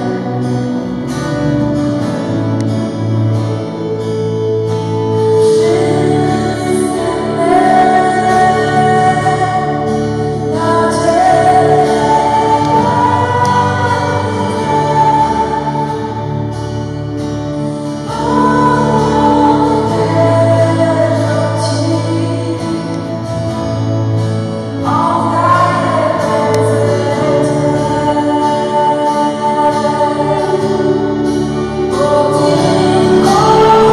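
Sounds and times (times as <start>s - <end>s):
woman singing into a microphone: 0.0s - 0.8s, 5.0s - 17.0s, 17.8s - 33.9s
electric keyboard: 0.0s - 33.9s
strummed small guitar: 0.0s - 33.9s.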